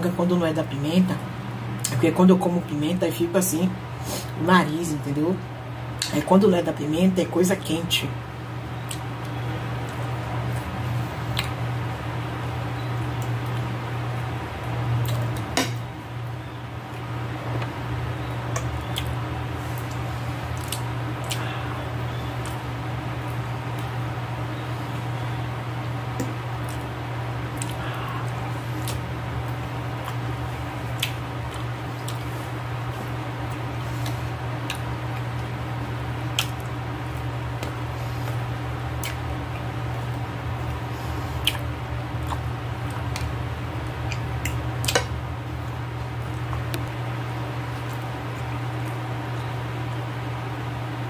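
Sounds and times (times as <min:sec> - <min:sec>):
low hum: 0:00.0 - 0:51.0
wet chewing: 0:08.8 - 0:10.7, 0:11.3 - 0:11.6, 0:12.7 - 0:15.5, 0:18.2 - 0:24.1, 0:26.2 - 0:49.6.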